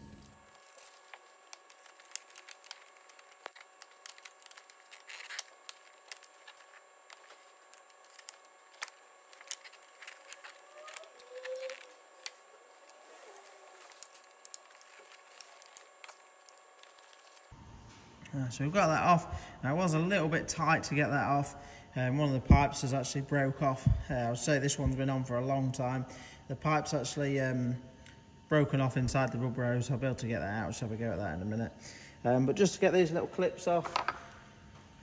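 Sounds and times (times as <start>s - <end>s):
clicks and rattles of plastic parts: 33.8s - 34.3s.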